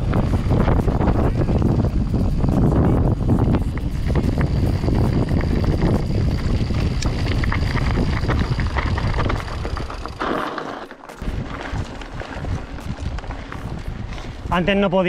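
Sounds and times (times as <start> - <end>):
wind buffeting microphone: 0.0 - 10.3, 11.2 - 15.0
bike rattling with sharp clicks: 0.0 - 14.8
tyres crunching over stones: 3.6 - 15.0.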